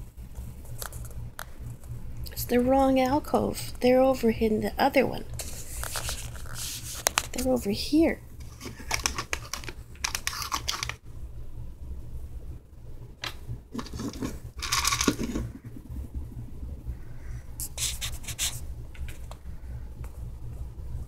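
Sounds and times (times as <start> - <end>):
steady low hum: 0.0 - 21.0
treat bag crinkling: 8.4 - 11.0, 13.7 - 15.7.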